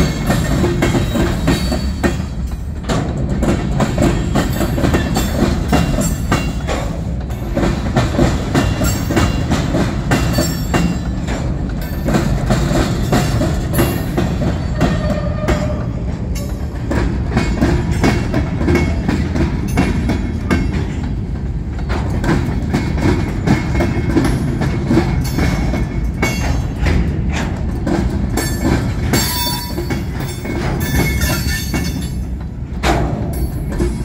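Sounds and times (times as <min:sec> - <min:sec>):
train wheels rumbling on rail: 0:00.0 - 0:34.0
wheels clattering over rail joints: 0:00.0 - 0:34.0.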